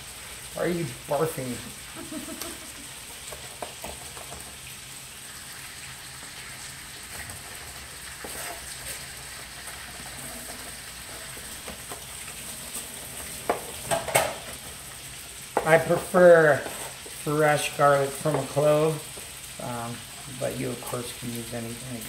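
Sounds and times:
food sizzling in a skillet: 0.0s - 22.0s.

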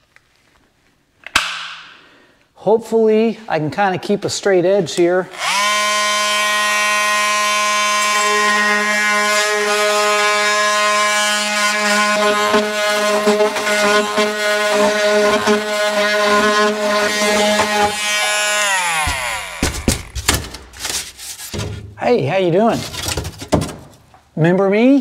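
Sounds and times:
electric saw cutting wood: 5.3s - 20.6s
knocks: 19.0s - 20.8s.

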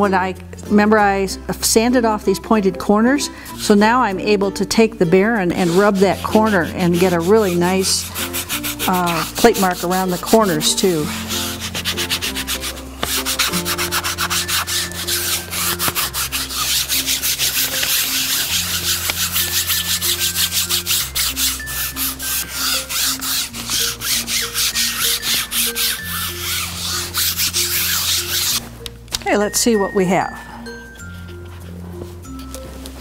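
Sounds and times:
baren rubbing over paper: 5.4s - 28.7s.

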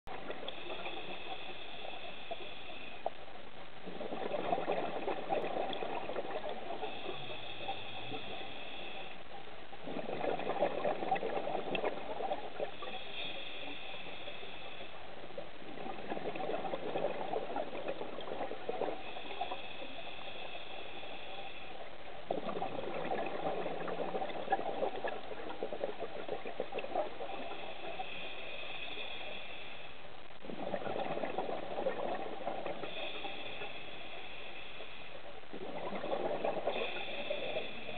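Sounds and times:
hissing regulator inhalation: 36.7s - 37.9s.

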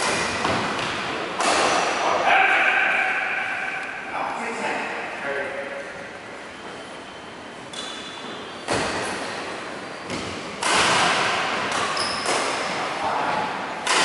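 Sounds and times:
racket hitting shuttlecock: 0.0s - 2.0s, 8.6s - 9.4s, 10.1s - 12.8s, 13.8s - 14.0s
shoes squeaking on wooden court: 6.4s - 10.6s, 11.7s - 12.9s.

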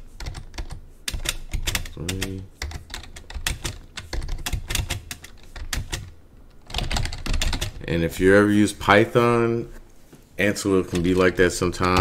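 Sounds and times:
keyboard typing: 0.1s - 7.9s.

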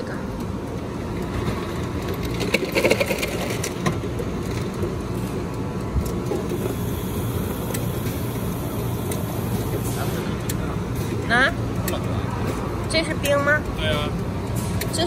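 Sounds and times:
slush dispenser humming: 6.2s - 12.8s.

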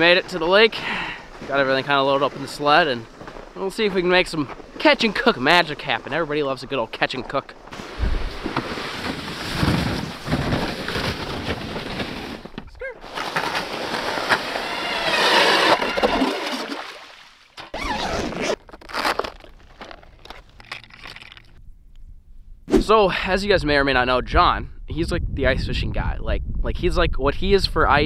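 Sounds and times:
sled dragged over snow: 0.0s - 16.6s
ice auger whining: 13.0s - 16.9s
lures rattling in tackle box: 20.2s - 21.6s.

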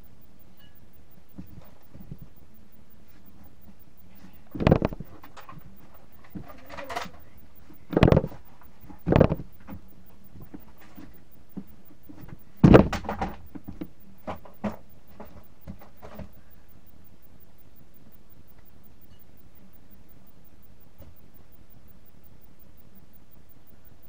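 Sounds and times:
light clicks and knocks: 3.2s - 16.6s
toy blaster thumps: 12.6s - 13.8s.

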